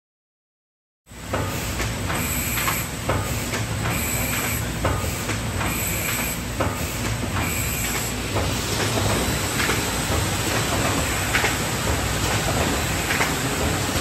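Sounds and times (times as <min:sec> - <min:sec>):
laminator humming: 0:02.0 - 0:14.0.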